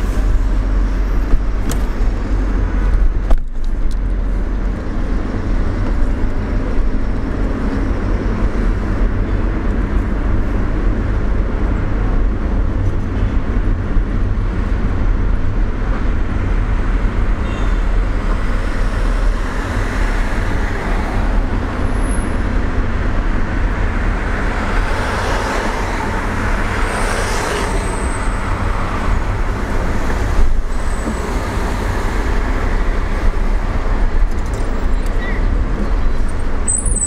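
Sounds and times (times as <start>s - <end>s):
car engine and tyre rumble: 0.0s - 37.0s
passing traffic: 0.0s - 37.0s.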